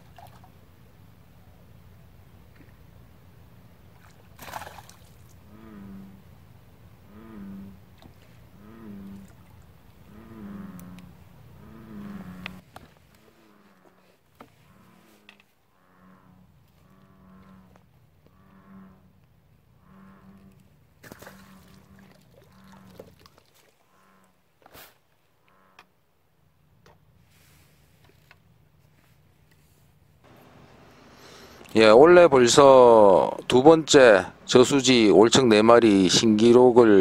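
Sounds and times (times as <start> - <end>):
frog calls low mooing: 5.4 - 6.4, 7.0 - 7.9, 8.5 - 14.0, 14.6 - 20.7, 21.3 - 23.1, 23.9 - 24.4, 25.4 - 25.9.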